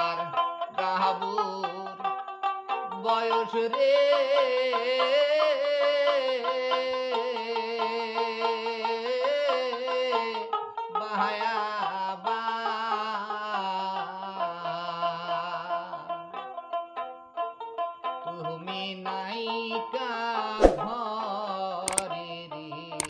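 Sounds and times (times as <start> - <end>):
man singing: 0.0 - 1.9, 2.9 - 10.4, 18.3 - 23.0
plucked string instrument: 0.0 - 19.7.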